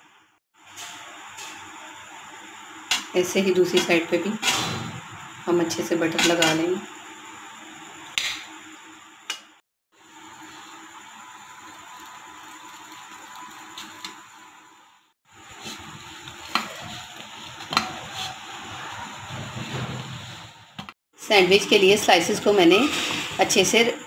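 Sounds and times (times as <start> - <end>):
bread sizzling in a frying pan: 10.0 - 20.2.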